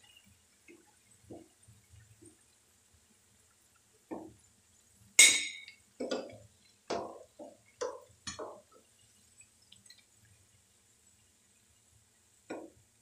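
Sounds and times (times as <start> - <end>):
metal spoon knocking frying pan: 5.2 - 8.6.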